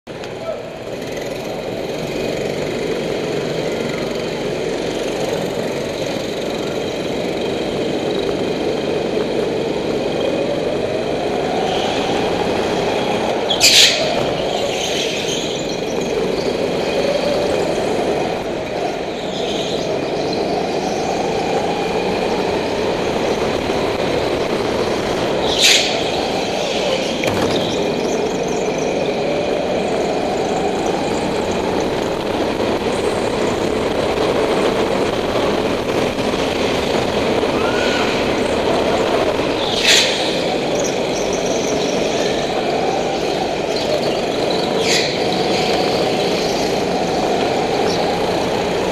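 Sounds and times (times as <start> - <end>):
high-pitched tyre squeals: 10.1 - 23.3, 24.4 - 32.0, 37.3 - 48.1.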